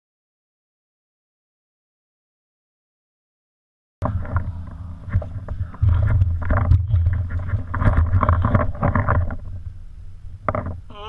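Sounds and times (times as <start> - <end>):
muffled low rumble and knocking: 4.0 - 10.9.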